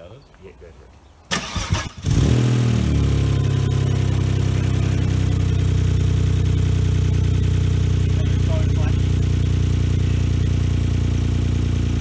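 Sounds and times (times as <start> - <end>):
starter motor cranking: 1.3 - 2.4
car engine starting and idling: 1.3 - 12.0.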